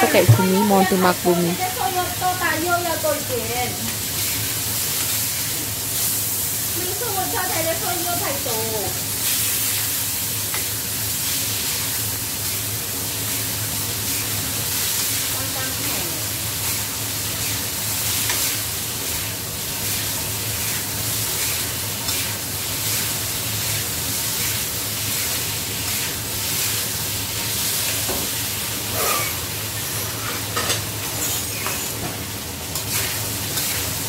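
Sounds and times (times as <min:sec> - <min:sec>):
shrimp sizzling in a wok: 0:00.0 - 0:34.0
spatula scraping a wok: 0:16.6 - 0:19.2, 0:19.8 - 0:26.9, 0:28.8 - 0:32.0, 0:32.7 - 0:34.0.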